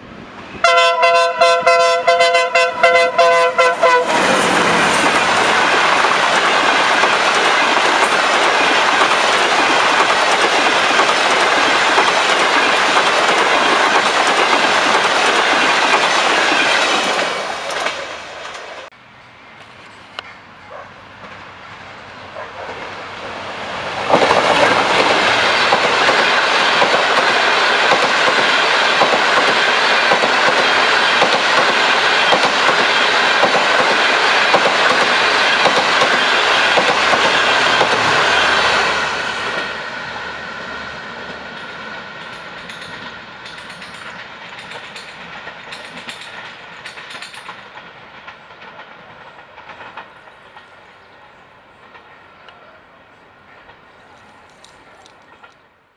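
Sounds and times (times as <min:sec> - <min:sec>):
train passing: 0:00.0 - 0:55.9
train wheels on rails: 0:00.0 - 0:55.9.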